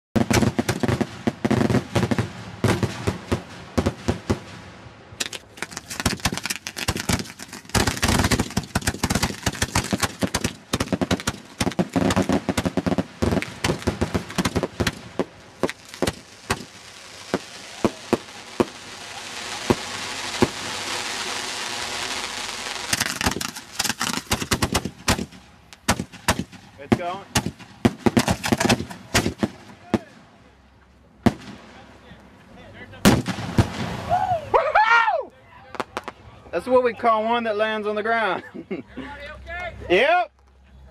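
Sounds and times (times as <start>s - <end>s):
fireworks hissing: 0.2s - 30.6s
fireworks shell bursts: 5.2s - 18.8s, 19.5s - 29.6s.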